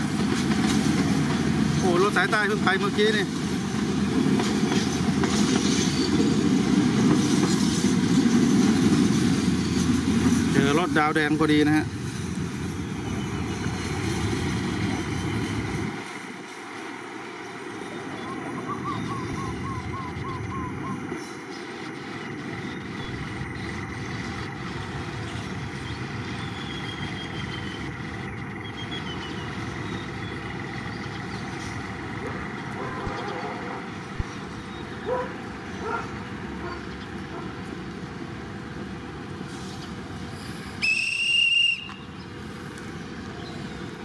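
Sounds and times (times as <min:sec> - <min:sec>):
high-pitched whistle blast: 0:40.8 - 0:42.1.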